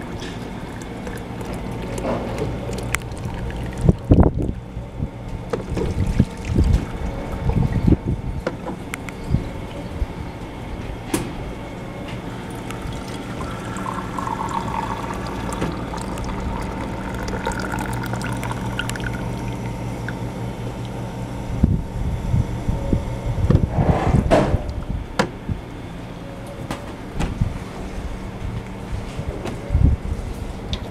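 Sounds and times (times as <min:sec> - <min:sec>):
machine hum: 0:00.0 - 0:30.9
tea pouring into ceramic mug: 0:02.7 - 0:04.1, 0:12.4 - 0:20.2.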